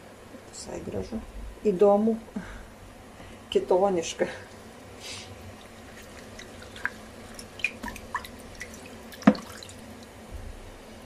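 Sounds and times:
water dripping: 5.5s - 10.2s.

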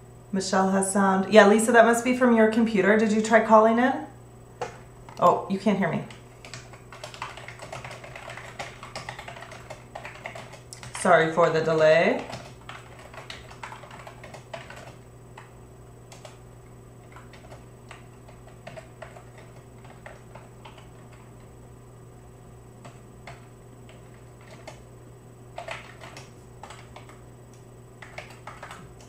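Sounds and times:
low electrical hum: 0.0s - 29.0s
typing on computer keyboard: 6.1s - 11.1s, 11.7s - 15.5s, 16.1s - 16.4s, 17.0s - 21.3s, 22.8s - 24.8s, 25.6s - 27.2s, 28.0s - 29.0s.

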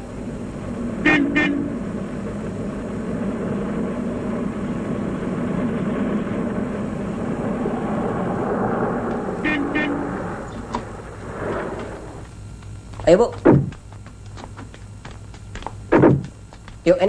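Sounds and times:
car engine running: 0.0s - 17.0s
car horn toots: 1.0s - 1.8s, 9.2s - 11.1s.

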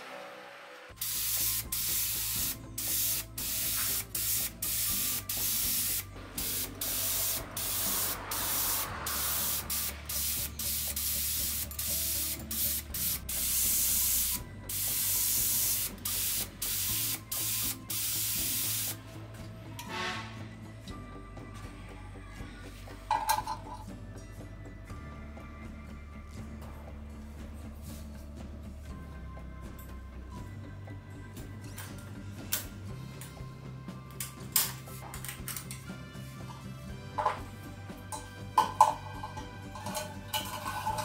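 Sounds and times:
spray gun hissing bursts: 1.0s - 19.0s.

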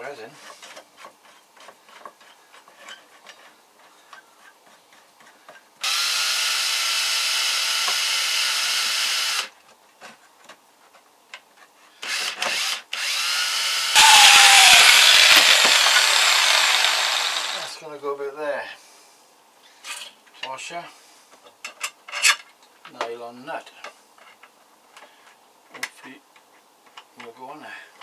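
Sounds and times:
cordless drill running: 5.8s - 9.5s, 12.0s - 17.8s
power tool biting into work: 5.8s - 9.5s, 12.0s - 17.8s.

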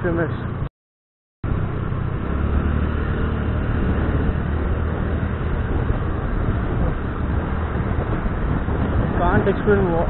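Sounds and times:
wind and road noise: 0.0s - 0.7s, 1.4s - 10.0s
motor scooter engine: 1.4s - 9.2s.

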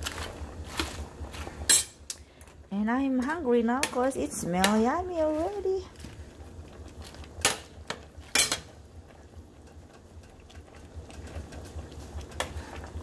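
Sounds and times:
low steady hum: 0.0s - 13.0s
utensil clinking on pot: 7.4s - 8.7s.

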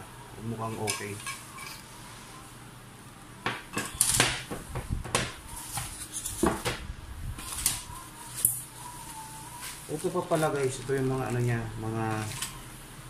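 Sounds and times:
plastic bag rustling: 7.3s - 12.6s.

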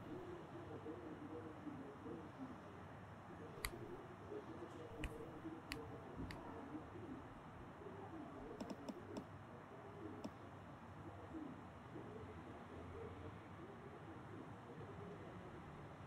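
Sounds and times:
fingertip taps on touchscreen: 3.6s - 4.0s, 5.0s - 5.3s, 8.6s - 9.3s.

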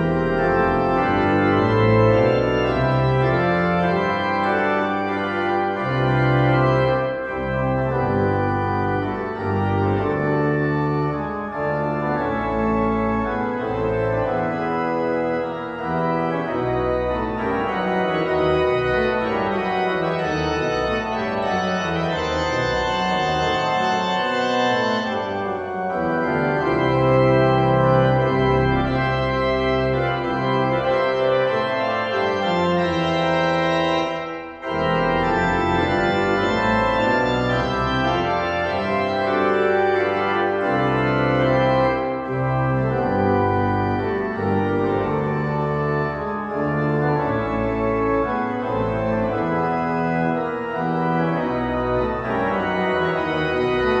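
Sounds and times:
church organ playing: 0.0s - 54.0s.

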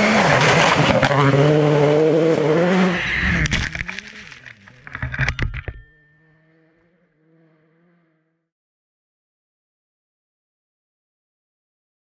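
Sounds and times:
rally car engine: 0.0s - 8.5s.

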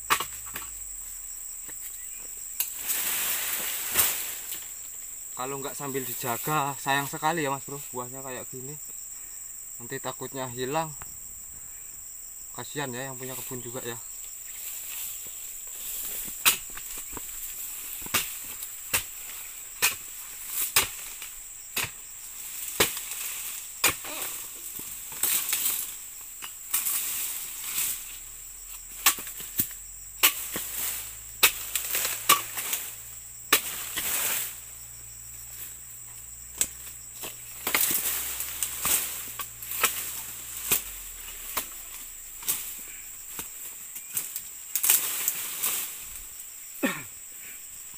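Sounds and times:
insects shrilling: 0.0s - 47.9s
chisel chopping palm fronds: 0.1s - 0.9s, 16.0s - 34.6s, 36.5s - 46.0s.

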